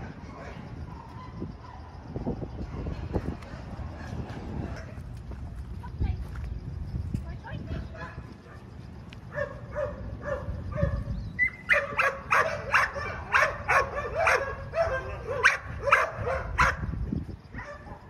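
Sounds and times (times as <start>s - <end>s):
small dog barking: 9.3s - 16.8s.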